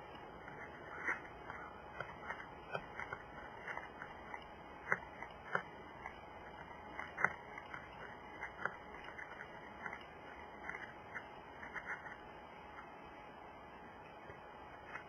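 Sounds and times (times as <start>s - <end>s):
bear crunching food: 0.4s - 12.2s.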